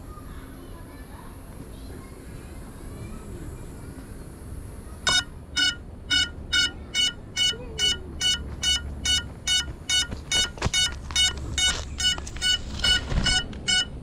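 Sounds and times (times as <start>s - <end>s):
short high beeps: 5.1s - 14.0s
handling noise: 8.3s - 13.8s.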